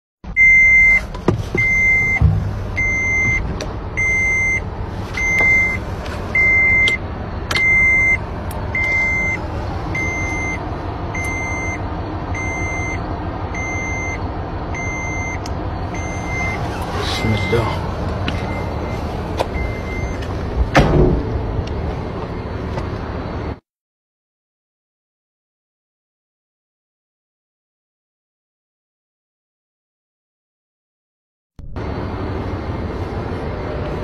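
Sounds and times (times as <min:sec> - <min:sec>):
vehicle rumble: 0:00.2 - 0:23.6, 0:31.6 - 0:34.0
vehicle warning beeper: 0:00.3 - 0:23.6, 0:31.6 - 0:34.0.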